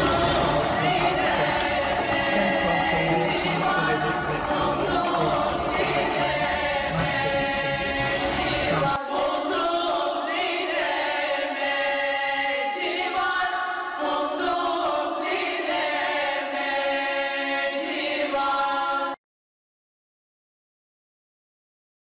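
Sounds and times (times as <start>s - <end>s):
women's choir singing: 0.0s - 19.2s.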